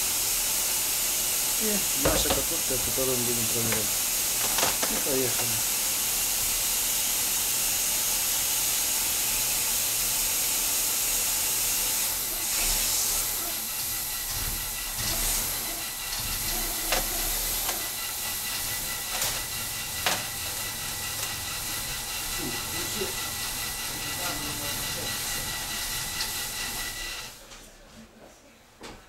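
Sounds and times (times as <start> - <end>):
steady hiss: 0.4 - 14.4.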